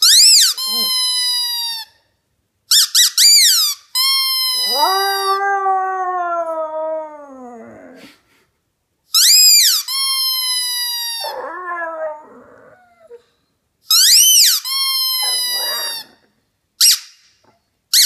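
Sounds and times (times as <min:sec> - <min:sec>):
squeaky dog toy squeaking: 0:00.0 - 0:02.0, 0:02.7 - 0:05.3, 0:09.1 - 0:11.6, 0:13.9 - 0:16.2, 0:16.8 - 0:17.2
puppy howling: 0:04.5 - 0:08.0, 0:11.2 - 0:13.2, 0:15.1 - 0:16.2.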